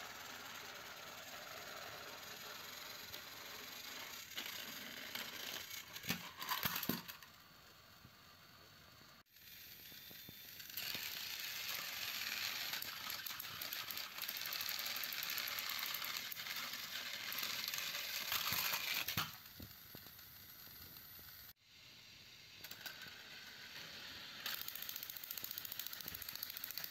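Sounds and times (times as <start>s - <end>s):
toy train motors whirring: 0.0s - 26.9s
toy trains tumbling onto carpet: 4.2s - 7.3s, 12.7s - 21.0s.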